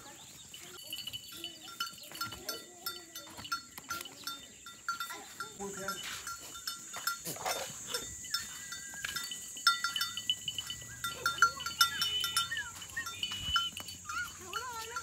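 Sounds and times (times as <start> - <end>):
short high chirping calls: 7.8 - 14.4.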